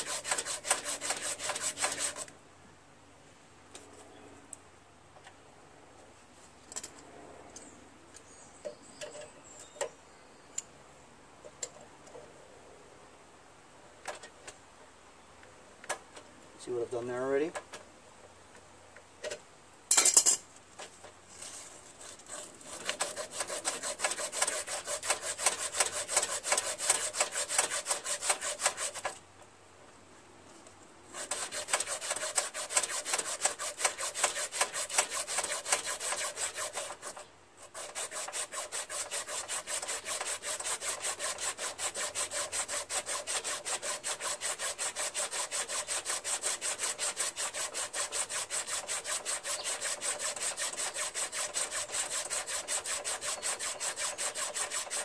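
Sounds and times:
sandpaper rubbing on metal: 0:00.0 - 0:02.3, 0:21.5 - 0:29.1, 0:31.1 - 0:55.0.

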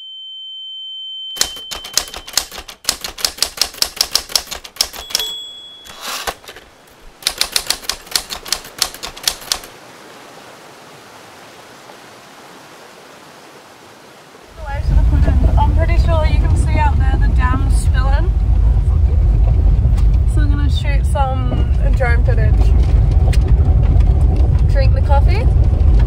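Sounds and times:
typewriter bell ding: 0:01.4 - 0:02.8, 0:04.4 - 0:06.4
typewriter key clacks: 0:01.4 - 0:06.6, 0:07.2 - 0:09.7
carriage return whoosh: 0:04.9 - 0:06.6
faint steady hiss: 0:05.2 - 0:14.9.

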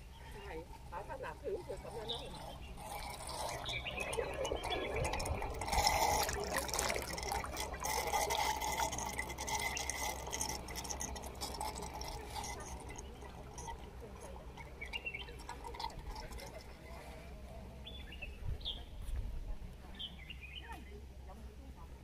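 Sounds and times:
water drips: 0:00.0 - 0:18.0
water pouring and splashing: 0:00.7 - 0:17.4.

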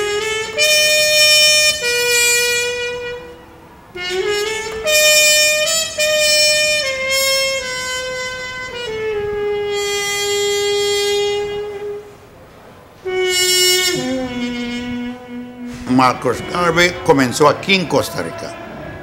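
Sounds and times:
solo trumpet melody: 0:00.0 - 0:18.6.

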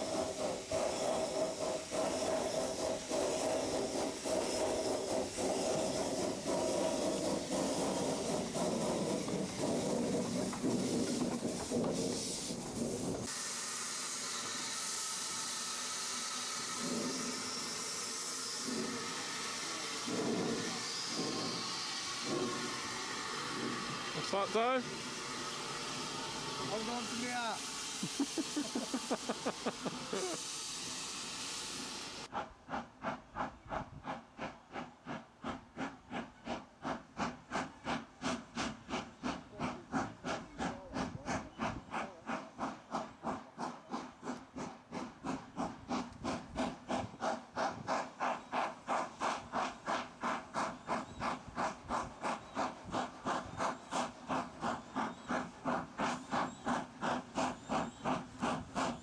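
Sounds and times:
loud steam hiss: 0:00.0 - 0:59.0
steam locomotive exhaust beats: 0:00.0 - 0:59.0.

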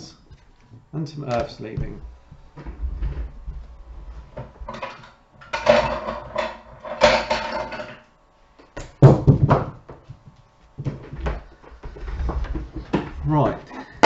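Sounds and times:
rustling and clattering: 0:00.2 - 0:14.0.

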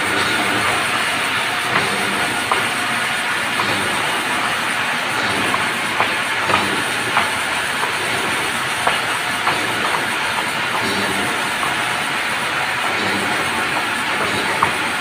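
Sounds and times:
sawmill machine noise: 0:00.0 - 0:15.0
sharp clacks: 0:00.1 - 0:04.6, 0:05.2 - 0:12.2.

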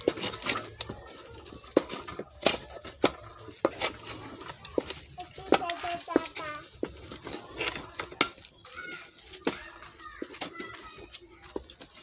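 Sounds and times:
utensil knocking and scraping pot: 0:00.0 - 0:08.6.

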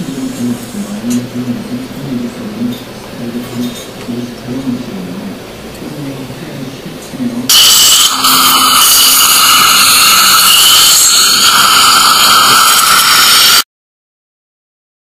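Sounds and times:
dental equipment hissing: 0:07.5 - 0:13.7.

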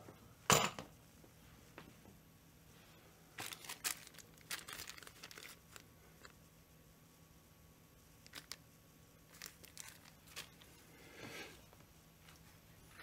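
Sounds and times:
plastic bag crinkling: 0:03.4 - 0:06.3, 0:08.2 - 0:08.6, 0:09.3 - 0:10.8.

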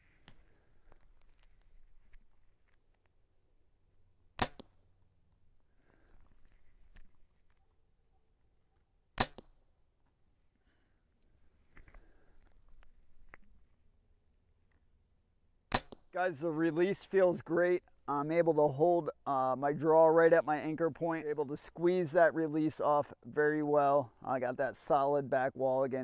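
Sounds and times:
bow string crack: 0:00.0 - 0:03.2, 0:04.3 - 0:04.9, 0:09.2 - 0:09.6, 0:15.7 - 0:16.1
rustles and clicks: 0:00.0 - 0:03.2.

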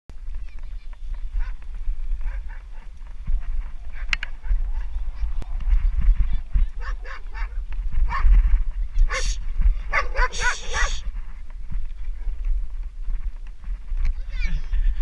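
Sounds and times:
wind rumble on microphone: 0:00.1 - 0:15.0
dog barking: 0:06.8 - 0:08.2, 0:09.1 - 0:11.0.

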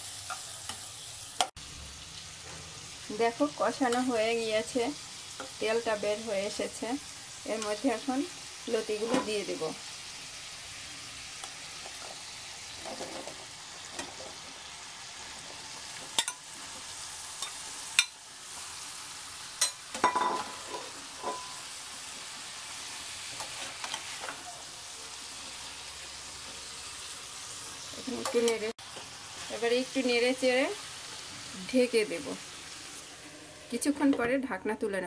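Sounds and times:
oil sizzling in a pan: 0:00.0 - 0:34.7
metal spatula scraping a pan: 0:19.6 - 0:21.8, 0:33.0 - 0:34.2.

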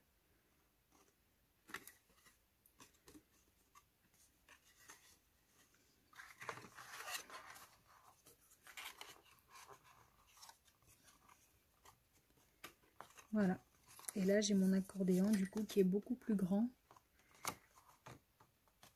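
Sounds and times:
cardstock rustling and tapping: 0:00.9 - 0:18.9.

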